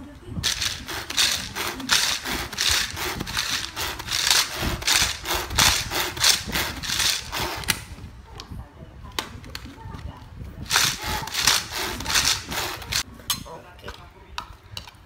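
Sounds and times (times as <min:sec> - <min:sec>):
pull-cord chopper whirring rattle: 0:00.4 - 0:07.9, 0:10.6 - 0:13.0.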